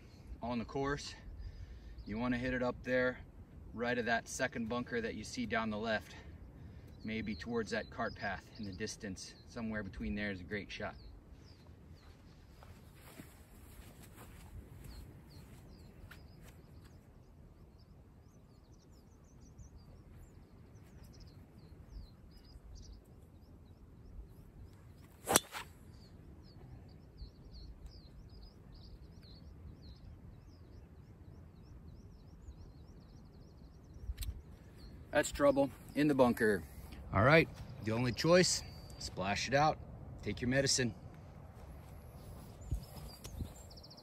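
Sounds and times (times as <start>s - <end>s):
birds chirping: 0.0s - 44.0s
golf driver striking ball: 25.2s - 25.6s.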